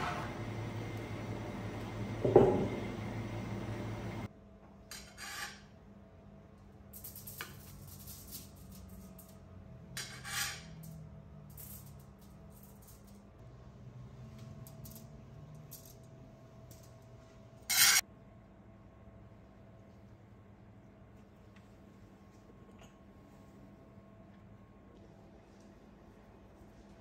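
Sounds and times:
metal ladle scraping tray: 0.0s - 0.4s.

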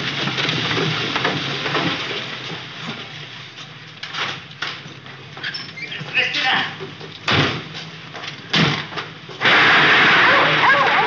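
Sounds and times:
tyres crackling over gravel: 0.0s - 7.2s
car engines running: 0.0s - 11.0s.

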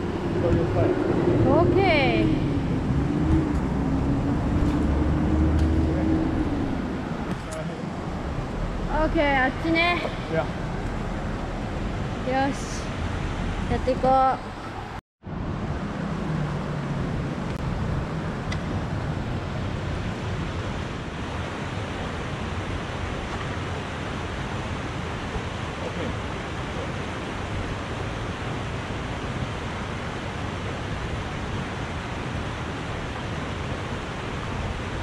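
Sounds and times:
river water rushing over stones: 15.5s - 35.0s.

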